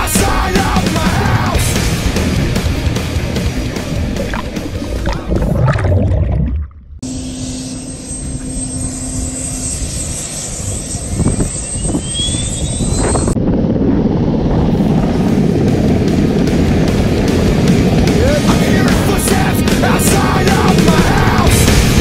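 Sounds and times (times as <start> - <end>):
thin rising whine: 0.8 - 22.0
helicopter turbine and rotor: 7.0 - 22.0.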